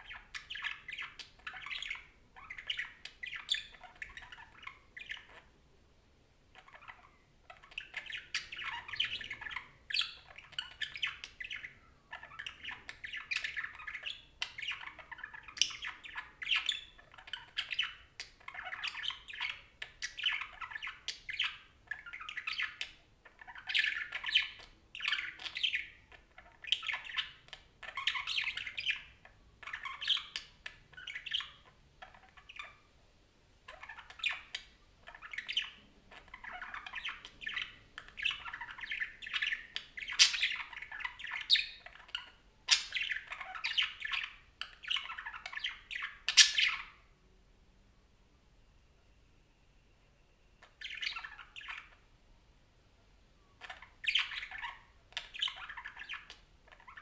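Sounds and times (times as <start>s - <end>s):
parakeet chirps and squawks: 0.0s - 5.6s, 6.5s - 33.0s, 33.6s - 47.2s, 50.2s - 52.2s, 53.4s - 57.0s.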